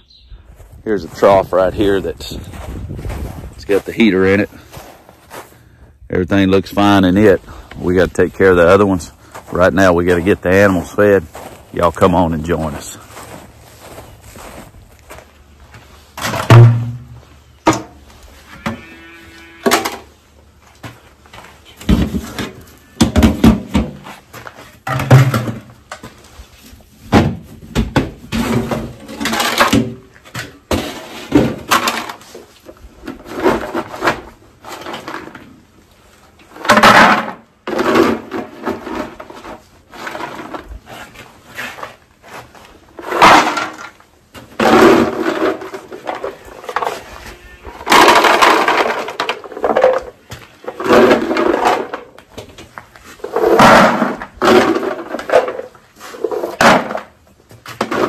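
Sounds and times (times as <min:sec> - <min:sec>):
metal bin lids clanking: 0:24.8 - 0:25.8.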